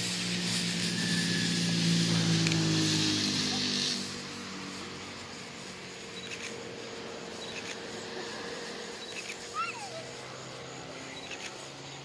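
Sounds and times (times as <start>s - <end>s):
faint high chirps: 9.0s - 10.1s.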